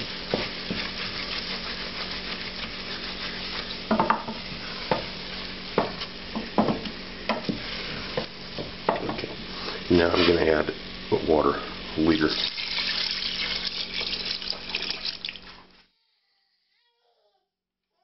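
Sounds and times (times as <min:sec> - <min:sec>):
sauce sizzling in a pot: 0:00.0 - 0:11.1, 0:11.8 - 0:15.8
spoon scraping and knocking pot: 0:03.8 - 0:05.1.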